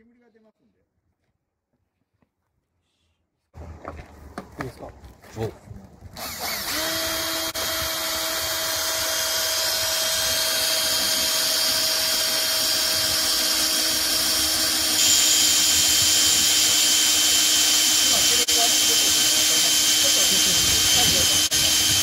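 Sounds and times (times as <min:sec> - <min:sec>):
drill bit cutting metal: 0:06.2 - 0:22.0
drill motor whine: 0:06.2 - 0:22.0.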